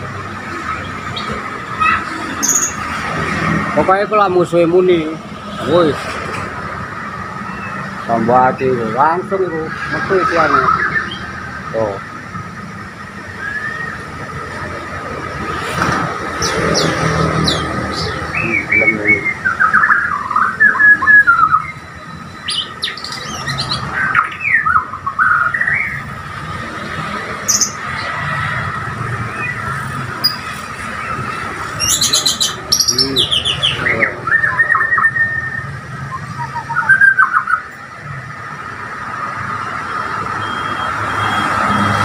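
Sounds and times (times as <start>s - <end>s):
bird singing: 0.0s - 2.9s, 7.4s - 12.1s, 13.2s - 14.4s, 16.3s - 26.2s, 27.4s - 28.2s, 29.1s - 37.9s.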